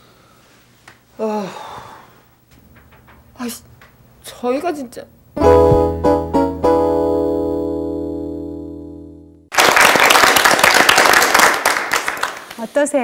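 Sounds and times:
keyboard chords: 5.4s - 9.5s
studio audience applauding: 9.5s - 12.6s.

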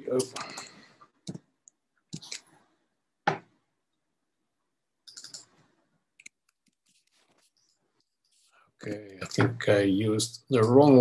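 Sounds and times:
computer mouse clicks: 5.1s - 5.5s
keyboard clicks: 5.1s - 5.5s.

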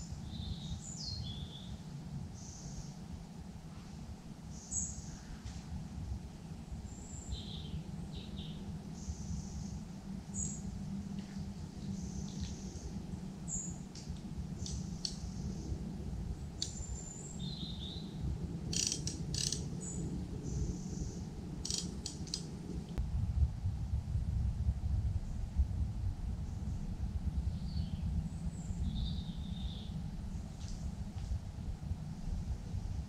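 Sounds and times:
small birds chirping: 0.0s - 1.8s, 6.7s - 10.7s, 11.8s - 23.0s
low background rumble: 0.0s - 33.0s
sharp clicks: 18.7s - 19.6s, 21.6s - 23.0s.

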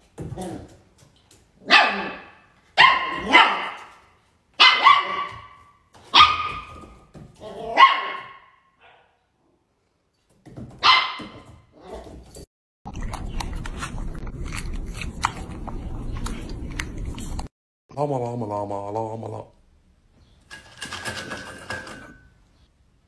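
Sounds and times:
puppy yapping: 1.6s - 3.9s, 4.6s - 9.2s.

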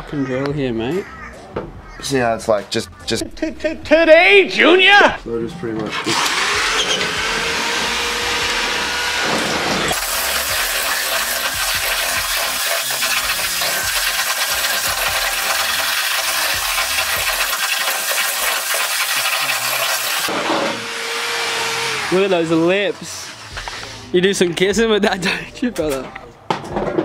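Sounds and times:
electric drill grinding sheet metal: 5.9s - 23.9s.

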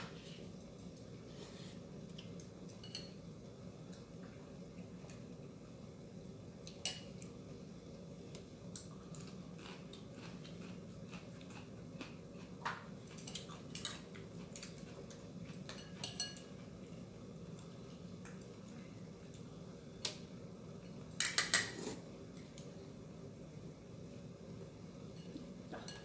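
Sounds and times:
steady low hum: 0.0s - 26.0s
chopsticks and spoons clinking on bowls: 2.2s - 3.2s, 6.7s - 7.3s, 12.8s - 17.0s, 25.1s - 26.0s.

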